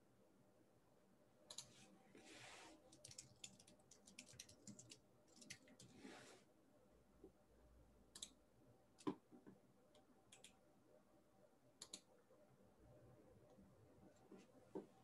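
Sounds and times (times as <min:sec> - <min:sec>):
computer mouse clicks: 0:01.5 - 0:01.8, 0:08.1 - 0:08.4, 0:09.0 - 0:10.6, 0:11.8 - 0:12.1.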